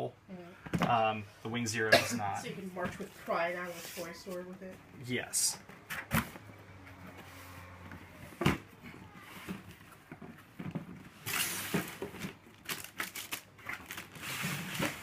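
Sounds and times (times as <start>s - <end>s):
cardboard scraping and rustling: 13.6s - 15.0s.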